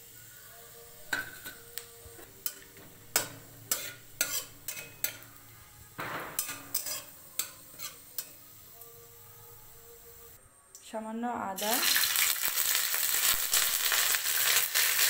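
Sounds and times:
spices sizzling in oil: 0.0 - 10.3, 11.6 - 15.0
metal spatula scraping pan: 2.3 - 5.4, 6.2 - 8.4.

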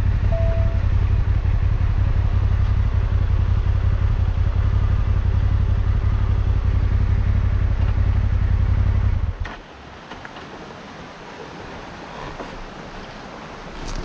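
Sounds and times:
motorcycle engine running: 0.0 - 9.4.

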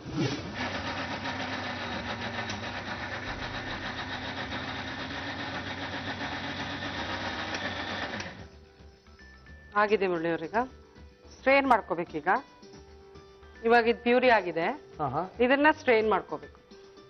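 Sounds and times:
mixer grinder motor running: 0.0 - 8.5.

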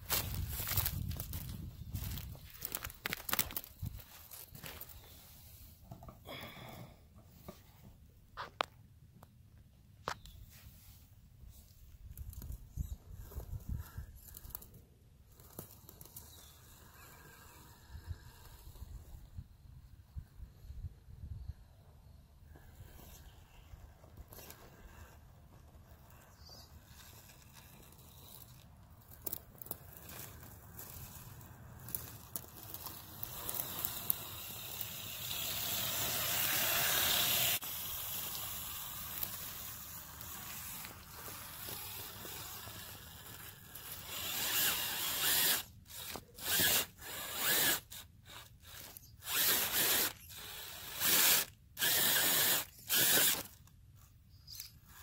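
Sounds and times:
toy truck motor whirring: 12.2 - 19.4, 22.5 - 55.0.

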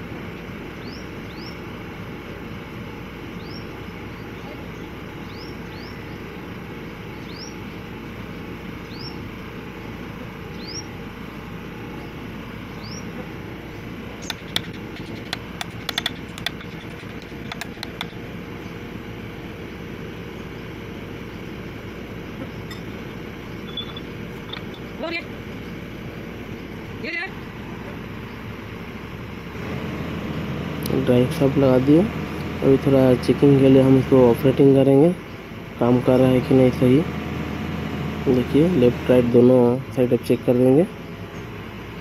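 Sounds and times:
excavator diesel engine idling: 0.0 - 42.0
metal clinks and taps: 14.2 - 18.2, 22.6 - 24.9
short rising chirps: 22.5 - 25.0.

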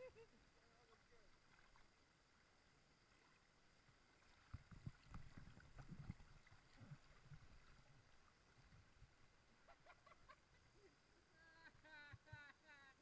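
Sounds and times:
water slapping an inflatable tube: 3.0 - 10.7.

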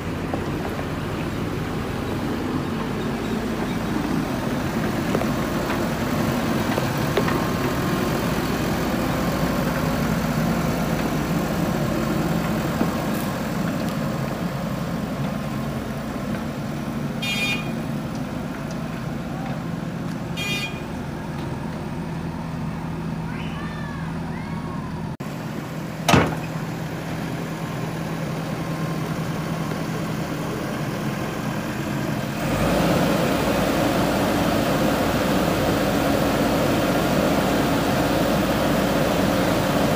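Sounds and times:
diesel engine driving past: 0.0 - 39.9.

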